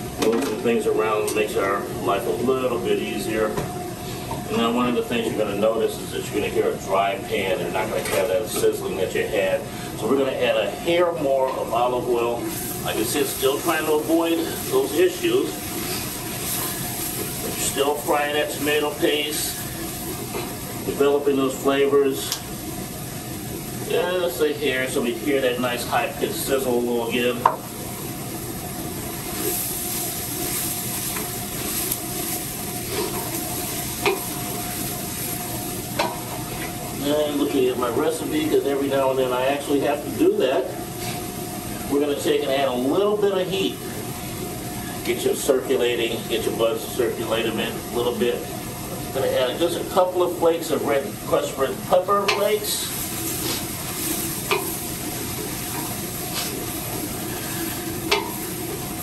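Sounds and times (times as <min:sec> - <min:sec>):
food sizzling in a pot: 0:08.8 - 0:59.0.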